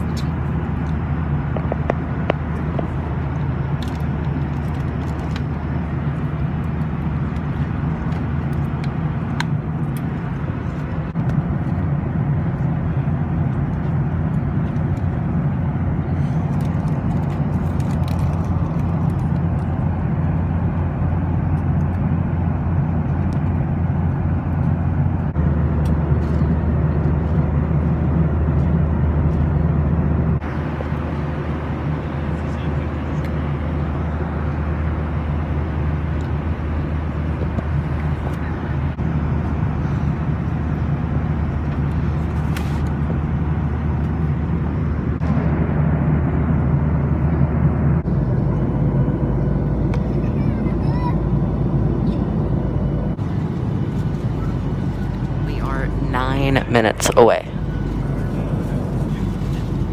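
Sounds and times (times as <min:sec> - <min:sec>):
airliner cabin engine rumble: 0:00.0 - 0:59.9.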